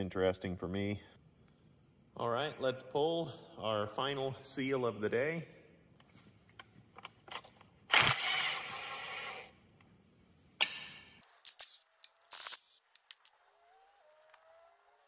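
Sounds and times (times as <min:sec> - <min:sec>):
quick metal clicks: 0:10.6 - 0:13.4.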